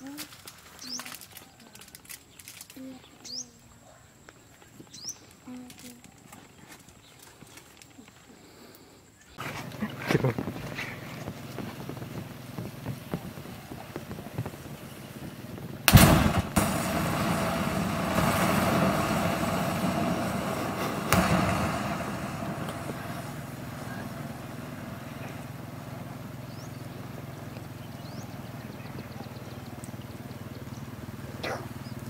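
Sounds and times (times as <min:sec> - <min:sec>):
matches crackling: 0:00.0 - 0:03.2, 0:05.3 - 0:08.2
rushing burning gas: 0:09.4 - 0:30.0
lighter bursting with bang: 0:15.8 - 0:26.7.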